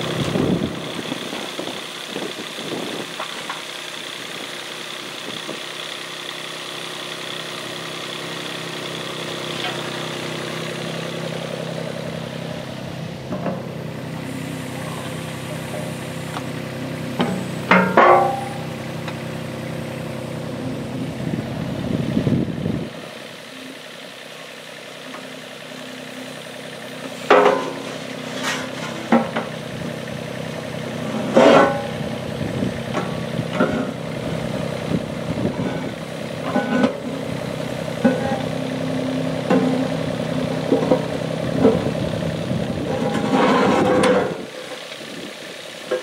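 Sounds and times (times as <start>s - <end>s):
excavator diesel engine running: 0.0s - 46.0s
metallic clanks of bucket: 17.2s - 18.6s, 27.1s - 29.5s, 31.2s - 31.9s, 36.5s - 37.0s.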